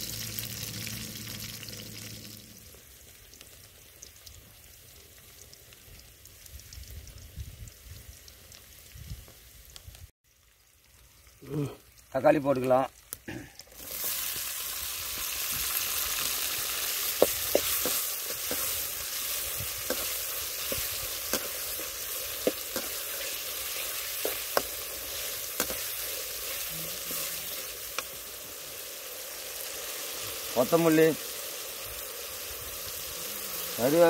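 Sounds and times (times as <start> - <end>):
tomatoes sizzling in hot oil: 0.0 - 34.0.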